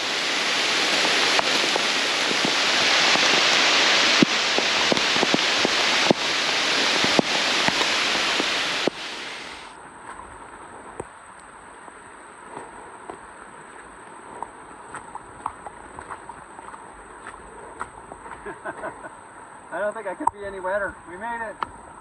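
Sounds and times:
raindrops tapping: 0.0s - 9.7s
heavy rain on forest canopy: 0.0s - 9.8s, 18.1s - 22.0s.

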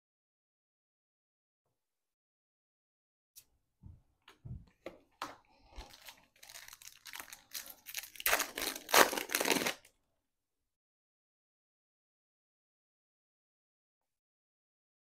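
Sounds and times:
foil wrapper crinkling: 5.7s - 9.9s
trading cards rustling: 5.7s - 9.9s.

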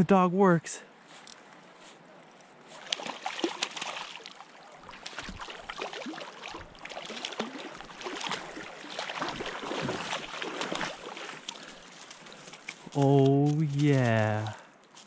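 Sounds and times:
fish splashing in water: 2.8s - 11.9s.

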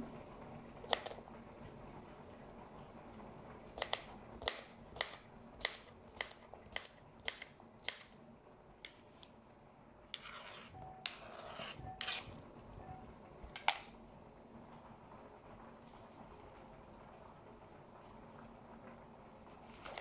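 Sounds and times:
knife chopping on cutting board: 10.2s - 12.3s.

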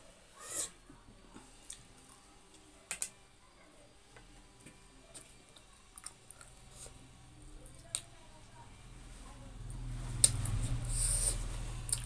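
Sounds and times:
soft chewing and wet smacks: 4.5s - 8.6s, 9.7s - 12.0s.

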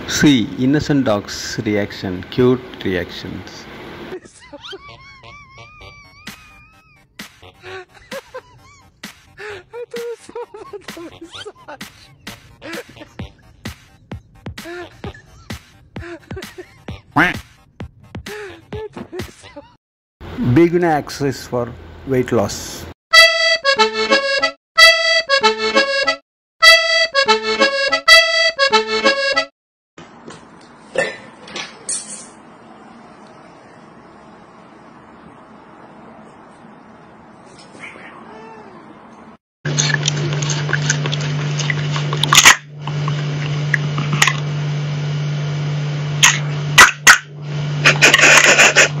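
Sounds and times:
bright instrumental music: 23.1s - 29.5s
steady low hum: 39.7s - 49.0s.

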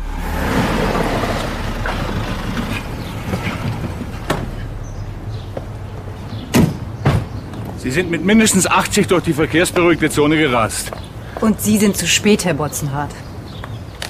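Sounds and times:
car pulling up: 0.0s - 8.8s.

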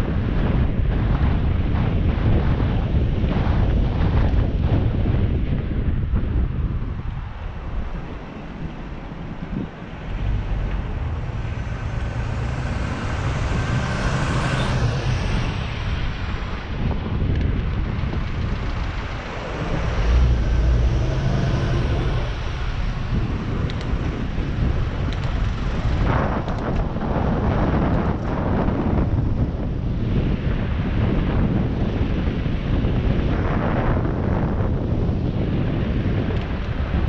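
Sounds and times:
wind buffeting microphone: 0.0s - 37.0s
city traffic: 5.5s - 29.0s.

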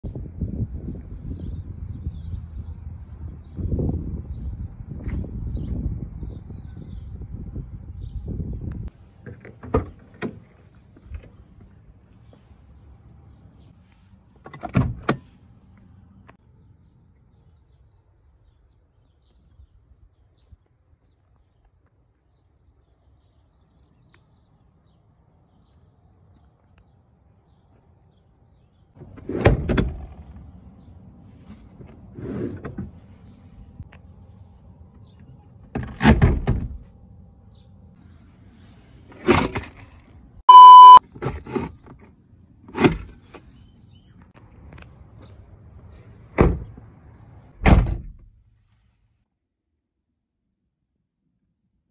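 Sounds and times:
short electronic beep: 40.5s - 41.0s.

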